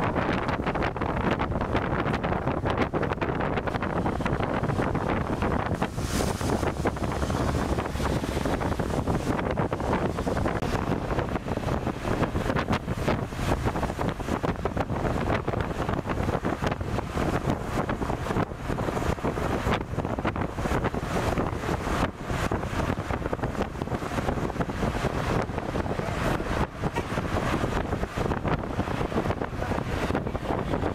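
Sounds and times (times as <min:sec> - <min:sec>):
vehicle road noise: 0:00.0 - 0:30.9
wind buffeting microphone: 0:00.0 - 0:30.9.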